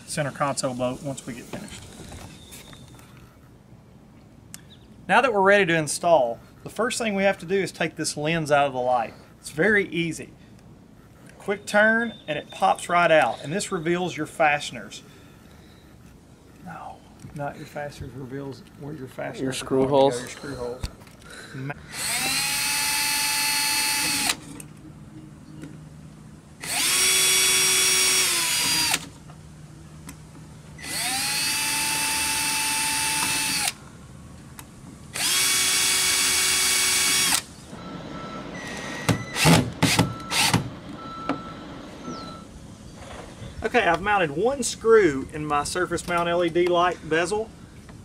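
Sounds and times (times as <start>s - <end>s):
cordless drill running: 21.9s - 24.4s, 26.6s - 29.2s, 30.8s - 33.8s, 35.2s - 37.6s, 39.3s - 40.6s.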